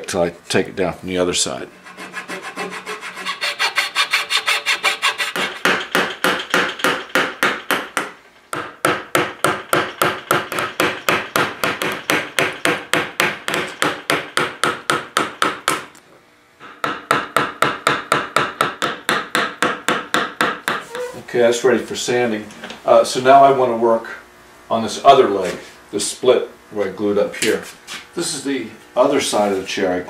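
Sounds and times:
hand tool scraping wood: 0:01.7 - 0:07.1, 0:20.7 - 0:21.3.

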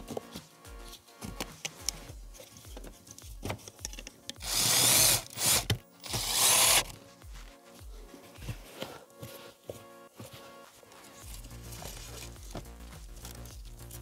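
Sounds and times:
cordless drill whirring: 0:04.4 - 0:06.9.

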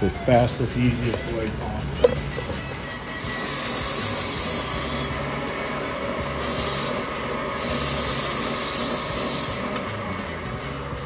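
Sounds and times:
metal grinding hiss: 0:02.4 - 0:05.3, 0:06.2 - 0:09.8
belt grinder motor hum: 0:02.4 - 0:11.0.

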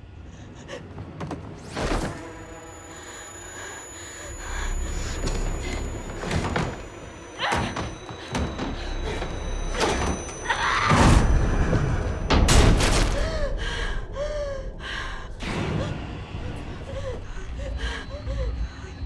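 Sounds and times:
low rumbling drone: 0:08.2 - 0:19.0.

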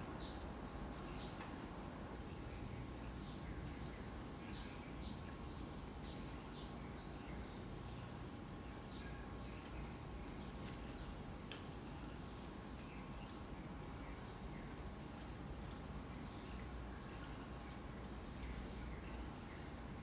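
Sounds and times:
small bird chirping: 0:00.0 - 0:01.6, 0:02.3 - 0:20.0.

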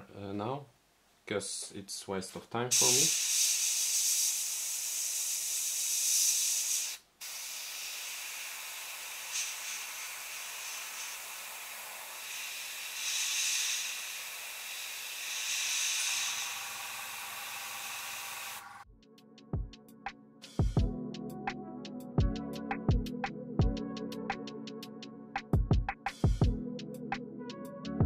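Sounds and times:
airbrush hissing: 0:02.7 - 0:18.9.

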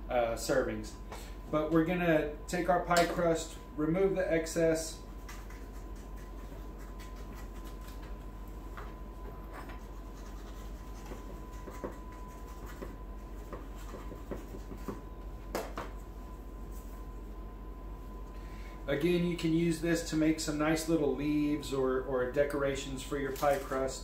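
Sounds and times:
knife scraping and tapping on board: 0:11.0 - 0:15.0.

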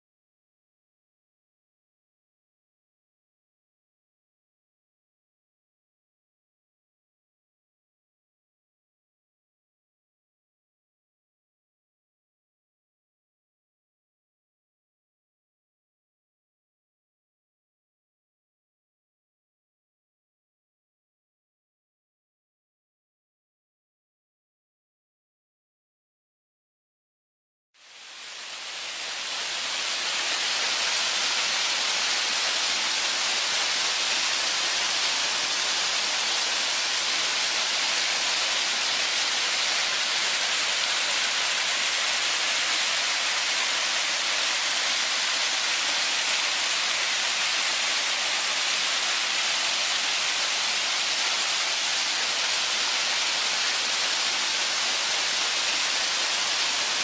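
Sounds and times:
mountain stream rushing: 0:27.8 - 0:57.0.

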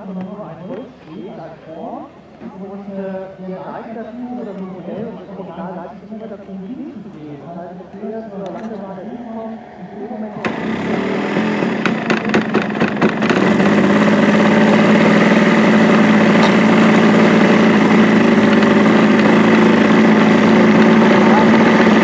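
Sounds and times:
model plane engine in flight: 0:07.8 - 0:22.0
sharp engine pops: 0:16.4 - 0:16.9.

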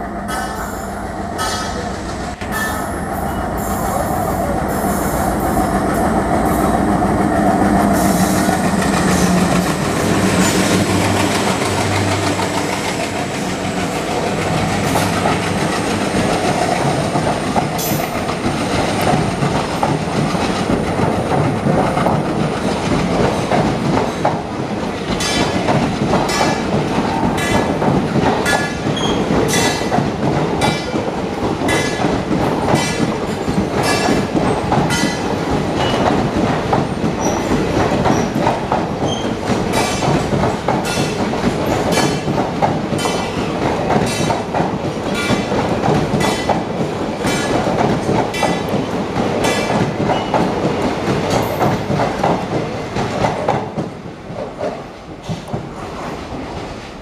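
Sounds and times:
diesel locomotive engine drone: 0:00.0 - 0:23.3
train wheels rumbling on rail: 0:00.0 - 0:57.0
wheels clacking over rail joints: 0:07.4 - 0:56.2.

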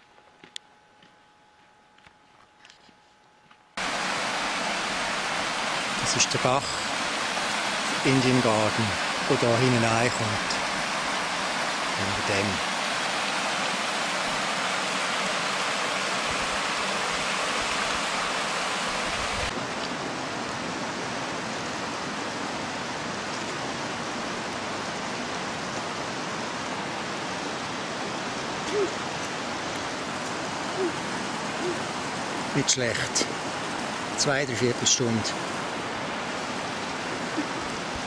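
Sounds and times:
creek water rushing over rocks: 0:03.8 - 0:38.0.

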